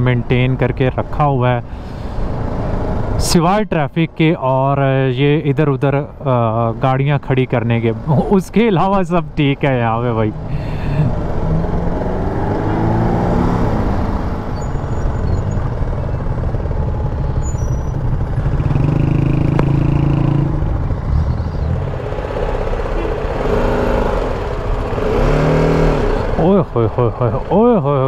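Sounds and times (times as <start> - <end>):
passing vehicle engines: 0.0 - 28.0
wind and road rumble: 0.0 - 28.0
motorcycle engine: 10.2 - 28.0.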